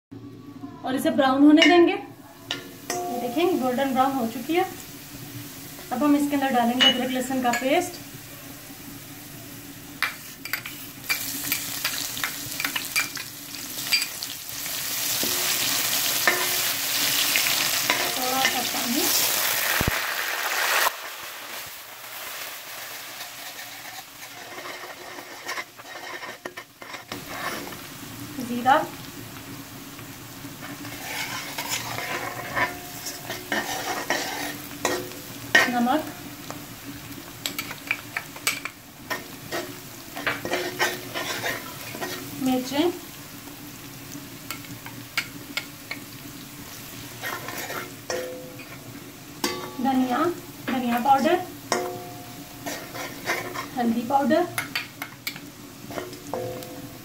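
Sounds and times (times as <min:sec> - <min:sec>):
oil sizzling in a pot: 0:00.2 - 0:57.0
spoon stirring in a pot: 0:23.2 - 0:27.9, 0:30.6 - 0:35.8, 0:37.4 - 0:42.4, 0:47.2 - 0:48.8, 0:51.7 - 0:53.8, 0:54.5 - 0:56.7.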